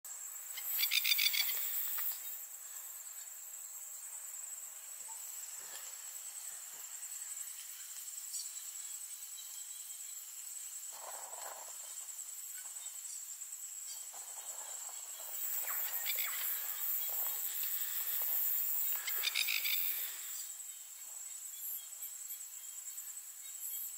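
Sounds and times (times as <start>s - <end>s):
insects trilling: 0.1s - 23.9s
lapwing harsh calls: 15.5s - 20.4s.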